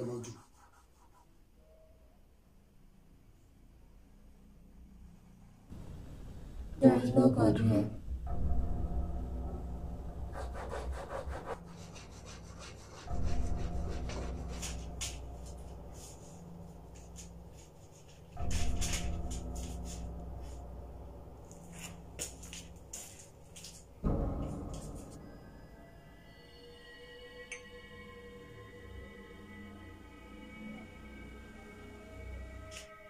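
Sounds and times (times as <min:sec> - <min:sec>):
deep booming hits with low drone: 0:08.0 - 0:10.6, 0:24.0 - 0:25.4.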